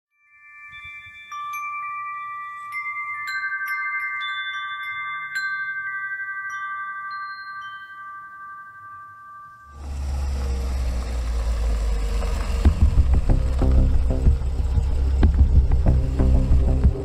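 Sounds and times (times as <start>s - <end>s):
metal chimes ringing: 0.1s - 11.9s.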